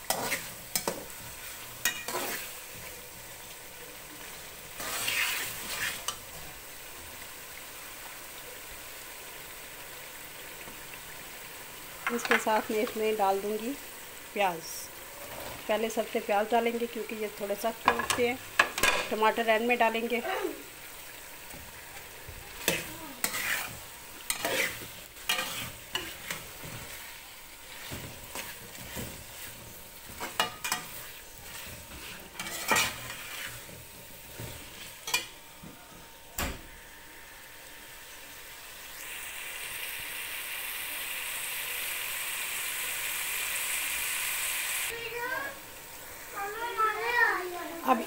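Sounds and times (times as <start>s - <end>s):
frying sizzle: 0.0s - 48.0s
metal fork scraping a steel pot: 22.6s - 23.7s, 24.3s - 26.4s, 30.2s - 33.7s.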